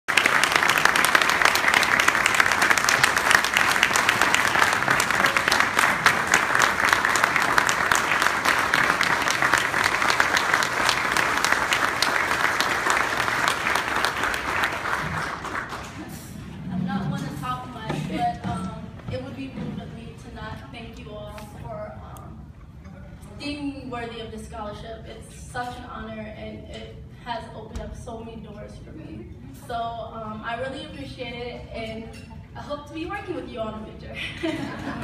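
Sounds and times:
loud close hand claps: 0:00.1 - 0:16.1
audience applauding: 0:00.1 - 0:16.3.

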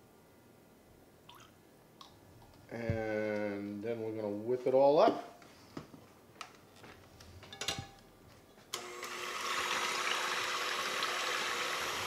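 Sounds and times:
electric hand mixer whipping cream: 0:08.8 - 0:12.0.

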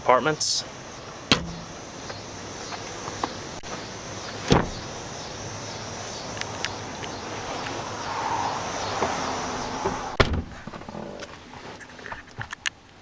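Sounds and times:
loud sharp thump: 0:09.8 - 0:10.6.

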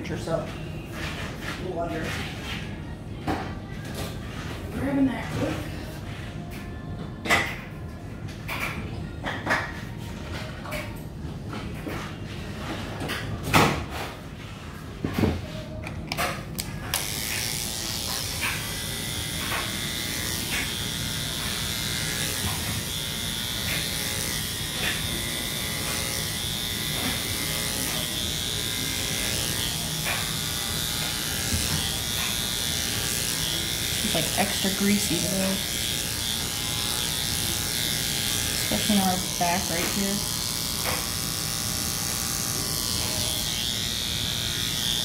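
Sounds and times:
electric clippers buzzing: 0:15.8 - 0:45.0.

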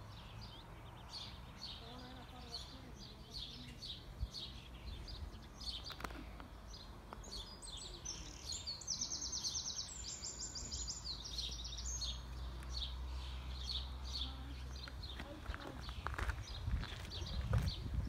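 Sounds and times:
songbirds chirping: 0:00.0 - 0:18.0
bird singing high trill: 0:07.3 - 0:12.2.

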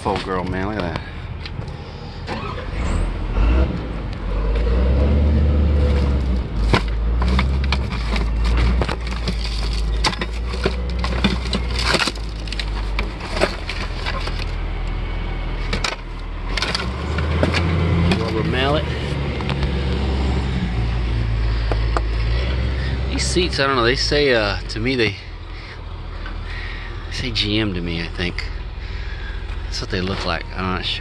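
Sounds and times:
low rumble: 0:01.0 - 0:31.0
junk parts clattering in a box: 0:05.9 - 0:14.6, 0:15.6 - 0:18.7.

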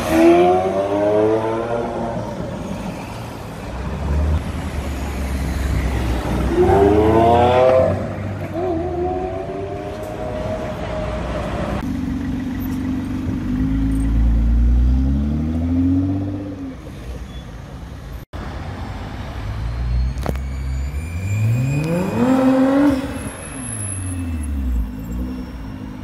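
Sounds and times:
car engine revving and accelerating: 0:00.0 - 0:02.3, 0:06.1 - 0:11.8, 0:13.3 - 0:16.8, 0:21.2 - 0:23.2.

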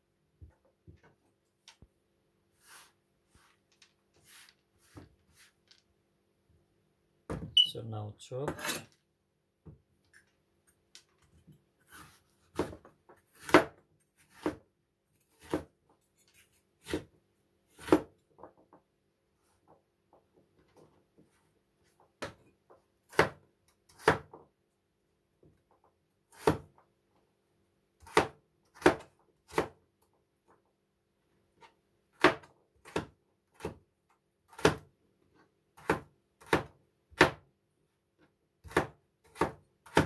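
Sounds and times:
cleaver chopping on plastic board: 0:12.5 - 0:14.6, 0:28.0 - 0:29.8, 0:34.5 - 0:34.8, 0:35.8 - 0:37.4, 0:38.6 - 0:40.0.

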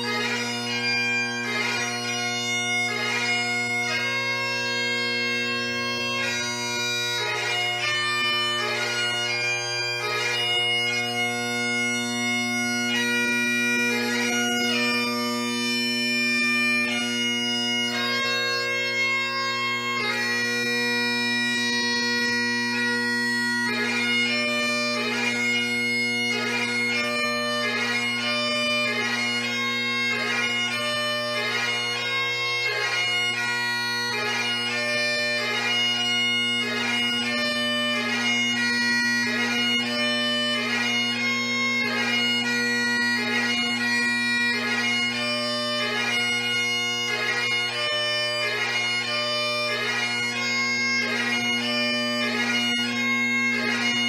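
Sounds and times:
bagpipe playing: 0:00.0 - 0:54.0.

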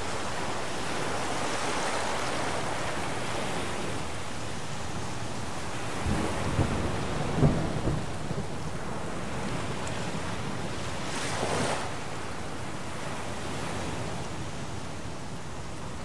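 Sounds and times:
heavy rain: 0:00.0 - 0:12.9
thunder rumbling: 0:05.9 - 0:10.7.

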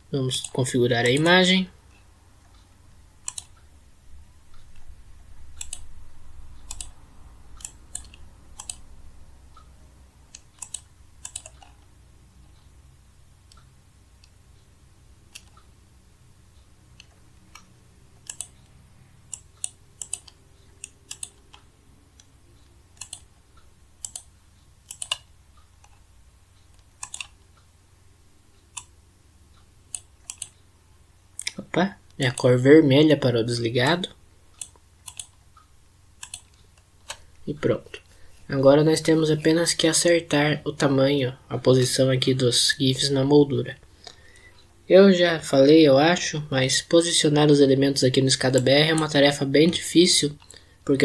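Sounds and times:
low steady hum: 0:00.0 - 0:51.0
computer mouse clicking: 0:00.3 - 0:03.7, 0:05.5 - 0:09.7, 0:10.3 - 0:11.9, 0:15.3 - 0:15.7, 0:16.6 - 0:23.4, 0:24.0 - 0:27.7, 0:28.6 - 0:30.7, 0:34.6 - 0:35.6, 0:36.2 - 0:37.4, 0:48.5 - 0:49.2.

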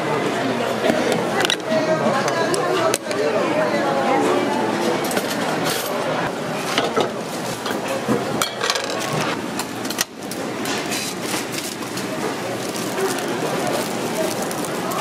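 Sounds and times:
pots and utensils clinking: 0:06.7 - 0:15.0.

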